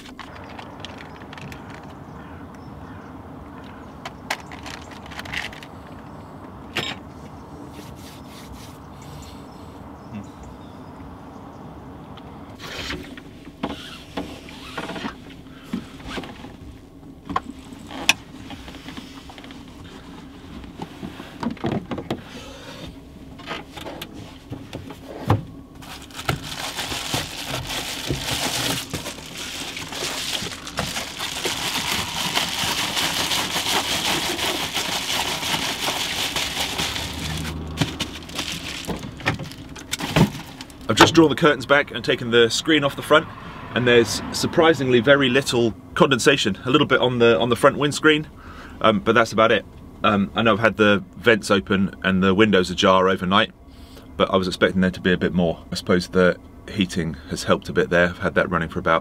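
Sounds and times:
heater low hum: 0.0 - 58.9
foil crinkling rustle: 25.8 - 40.9.

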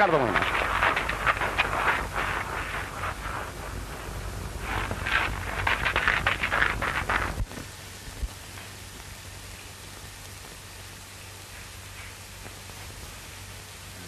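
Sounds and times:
footsteps crunching on gravel: 0.0 - 7.5
film soundtrack hiss: 0.0 - 14.0.

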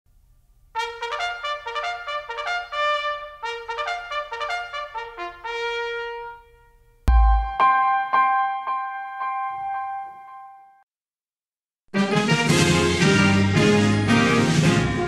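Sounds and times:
trumpet playing a melody: 0.8 - 8.1.

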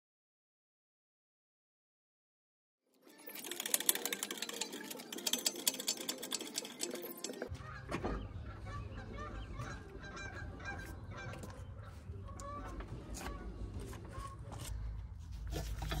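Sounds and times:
birds honking: 6.6 - 14.5.

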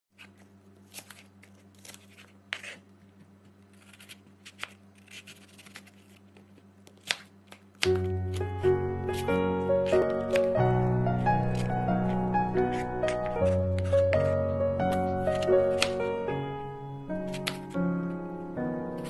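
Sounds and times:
low steady hum: 0.1 - 19.0
knife slicing apple: 0.2 - 2.9, 3.5 - 8.5, 9.1 - 10.6, 11.2 - 16.0, 17.2 - 17.8
blade tapping cutting board: 12.7 - 16.0.

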